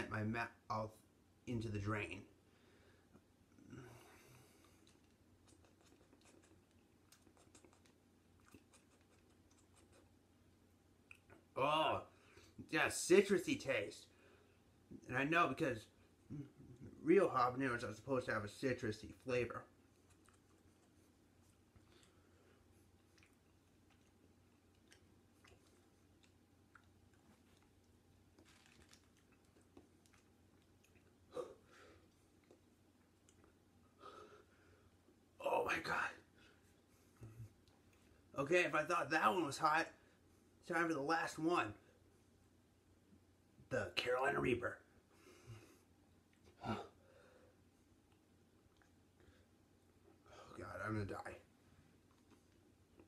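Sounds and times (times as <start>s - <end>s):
faint chewing clicks: 4.5s - 10.2s, 11.0s - 11.5s, 19.2s - 31.3s, 31.9s - 33.9s, 37.2s - 38.3s, 48.0s - 49.4s
mouth clicks from chewing: 4.8s - 10.0s.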